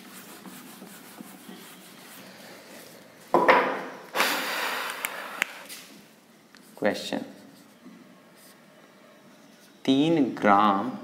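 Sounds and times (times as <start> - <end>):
rubbing strokes on a board: 0.0 - 3.0
faint room noise: 0.0 - 11.0.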